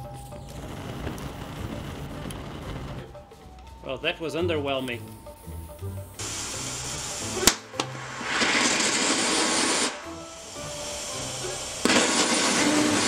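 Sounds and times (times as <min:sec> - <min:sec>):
rocket engine hissing bursts: 0:04.9 - 0:13.0
sharp crack: 0:07.1 - 0:10.2, 0:11.6 - 0:13.0.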